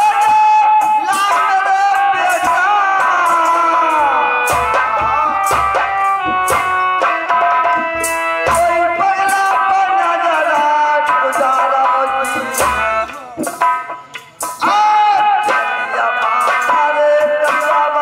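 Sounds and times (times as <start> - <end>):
person singing: 0.0 - 13.6, 14.4 - 18.0
sustained melodic tones: 1.5 - 17.2
hand drum: 4.4 - 18.0.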